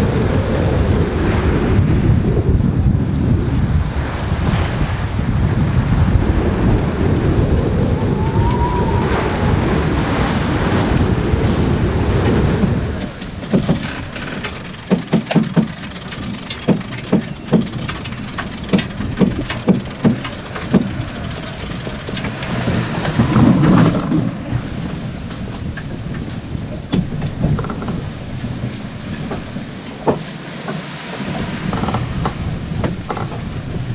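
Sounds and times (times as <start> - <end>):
wind and choppy sea rushing: 0.0 - 33.9
knocks and clicks of winches: 12.2 - 24.3.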